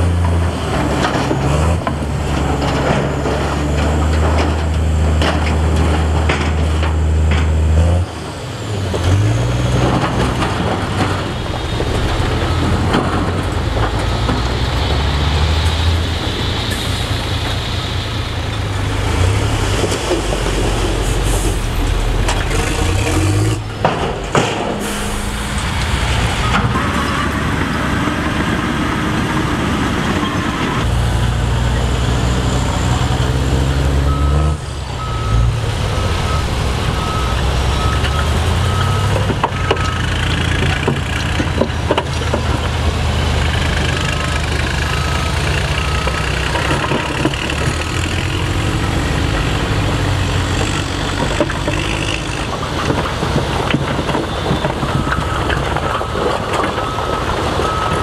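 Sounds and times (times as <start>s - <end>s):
dump truck engines running: 0.0s - 58.0s
rock and dirt sliding: 0.3s - 28.5s, 34.1s - 58.0s
reversing alarm beeps: 11.6s - 13.4s, 34.0s - 40.2s, 44.8s - 46.3s, 54.2s - 58.0s.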